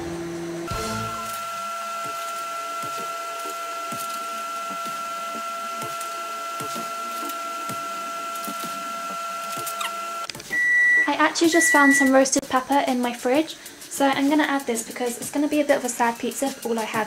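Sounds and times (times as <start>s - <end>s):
machine whine: 0.0s - 12.4s.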